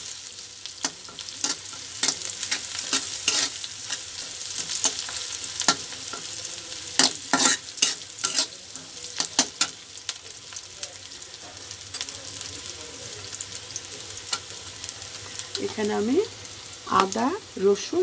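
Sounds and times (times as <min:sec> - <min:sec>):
vegetables sizzling in hot oil: 0:00.0 - 0:18.0
spatula scraping and knocking pan: 0:00.8 - 0:06.4, 0:07.0 - 0:09.8.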